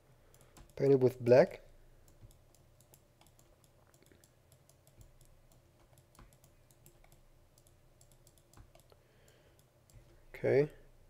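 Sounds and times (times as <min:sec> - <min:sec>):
mouse and keyboard clicking: 0:00.3 - 0:00.9, 0:02.0 - 0:10.2.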